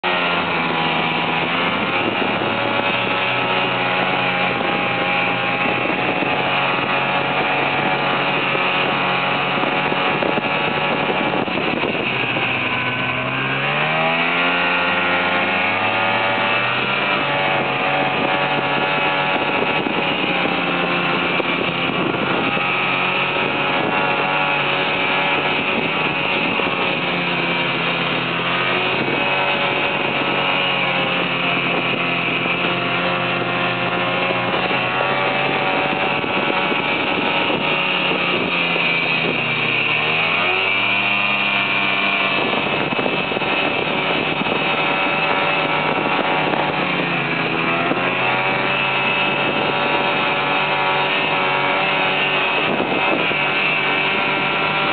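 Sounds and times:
snowmobile engine running: 0:00.0 - 0:54.9.

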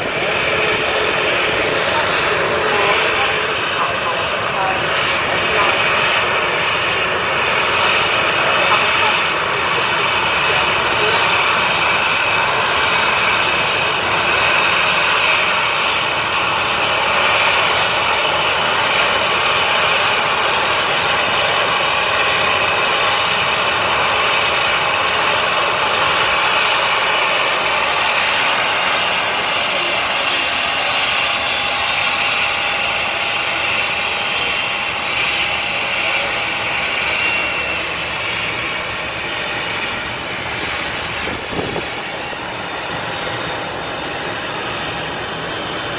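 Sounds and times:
jet engines whining at idle: 0:00.0 - 0:45.9.

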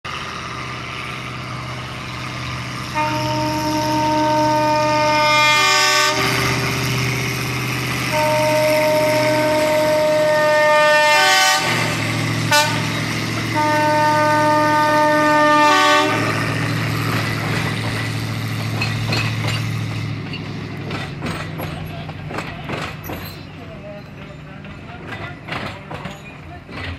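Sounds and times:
locomotive engine running: 0:00.1 - 0:26.9
locomotive horn blasts: 0:02.9 - 0:06.7, 0:08.0 - 0:16.4.

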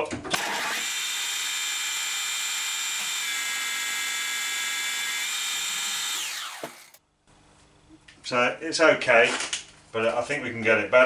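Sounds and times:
metal lathe whine: 0:00.4 - 0:06.9.

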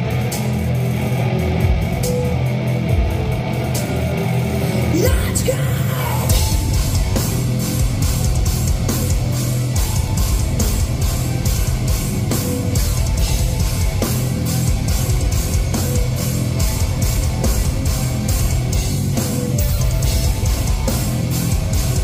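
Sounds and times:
live heavy metal band: 0:00.0 - 0:22.0.

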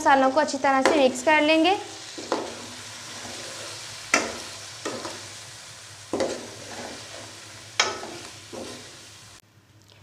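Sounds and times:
spoon scraping and knocking pot: 0:02.1 - 0:05.2, 0:06.1 - 0:09.0.

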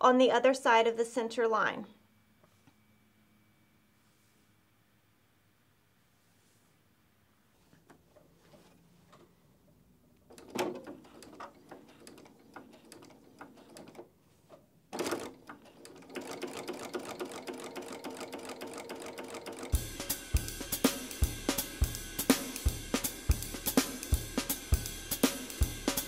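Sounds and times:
sewing machine stitching: 0:10.3 - 0:19.8.

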